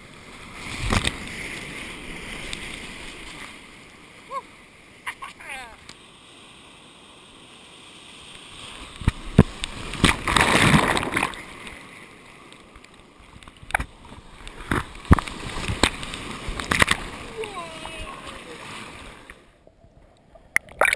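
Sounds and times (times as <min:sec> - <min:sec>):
ocean surf splashing: 0:00.0 - 0:19.6
water slapping on camera: 0:00.6 - 0:03.6, 0:08.6 - 0:11.8, 0:12.6 - 0:19.5.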